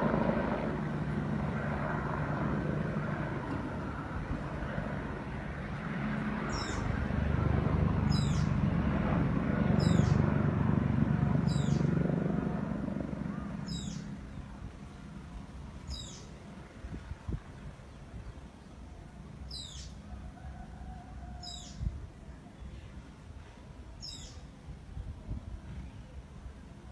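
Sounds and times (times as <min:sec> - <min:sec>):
helicopter passing overhead: 0:00.0 - 0:26.9
bird chirping: 0:06.5 - 0:06.9, 0:13.6 - 0:14.1, 0:15.9 - 0:16.3, 0:19.5 - 0:20.0.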